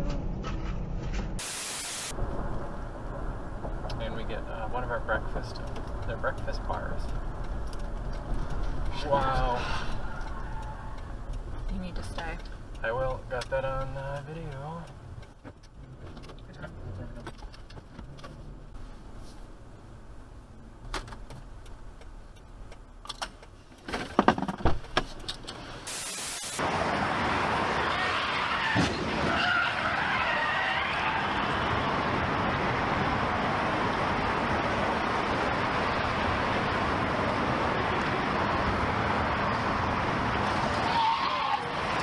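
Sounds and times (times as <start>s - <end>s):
car tires skidding: 7.9s - 11.3s, 26.6s - 42.0s.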